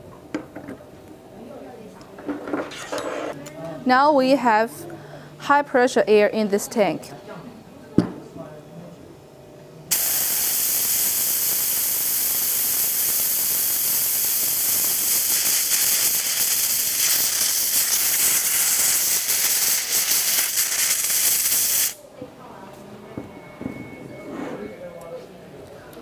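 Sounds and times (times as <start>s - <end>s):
compressed air hissing: 9.9s - 22.0s.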